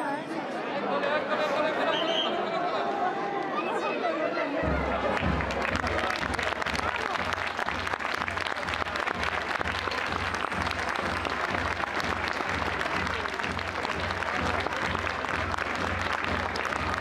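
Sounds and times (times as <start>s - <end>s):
crowd applauding: 4.6s - 17.0s.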